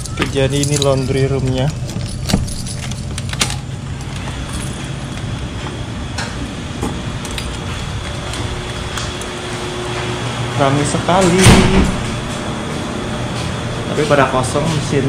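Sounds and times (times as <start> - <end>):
key turning in door lock: 0.0 - 4.8
keys jangling: 0.0 - 5.2, 7.2 - 8.7
steady low hum: 0.0 - 15.0.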